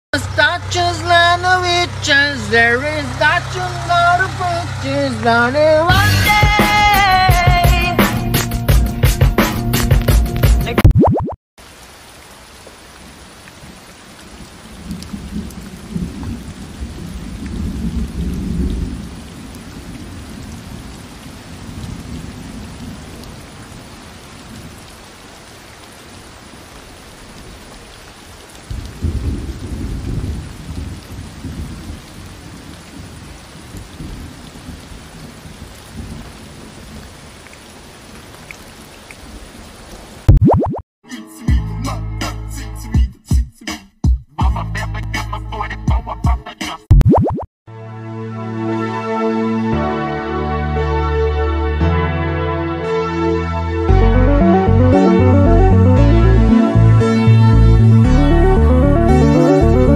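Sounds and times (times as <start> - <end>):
heavy rain: 0.1 - 8.5, 11.6 - 40.4, 52.8 - 59.9
thunder rumbling: 14.6 - 24.8, 28.6 - 37.0.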